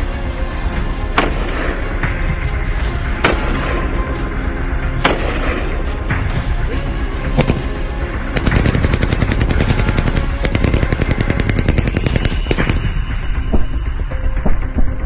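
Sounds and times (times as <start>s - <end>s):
machine gun firing: 8.3s - 12.9s.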